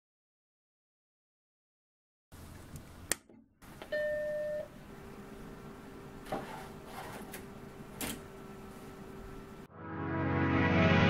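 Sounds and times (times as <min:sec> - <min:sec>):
computer humming: 0:04.5 - 0:09.7
computer startup chime: 0:09.7 - 0:11.0.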